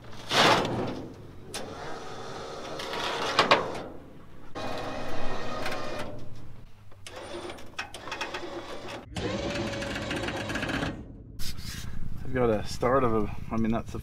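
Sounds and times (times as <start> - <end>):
electric winch motor whirring: 1.5 - 3.9, 4.5 - 6.3, 7.0 - 11.2.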